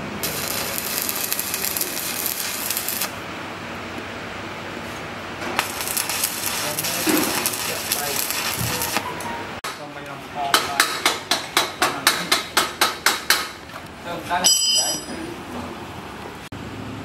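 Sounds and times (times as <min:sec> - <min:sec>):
arc welding crackling and hissing: 0:00.0 - 0:04.1, 0:04.8 - 0:09.1.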